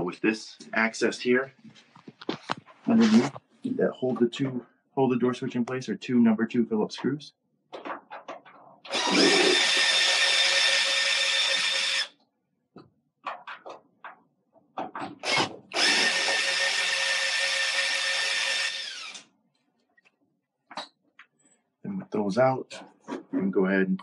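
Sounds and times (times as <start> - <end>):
cordless drill driving screws: 8.9 - 12.1, 15.2 - 19.3.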